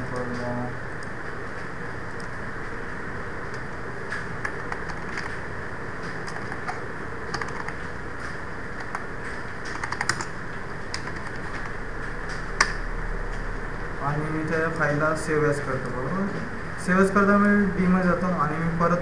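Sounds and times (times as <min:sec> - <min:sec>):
keyboard typing: 0:03.5 - 0:12.8.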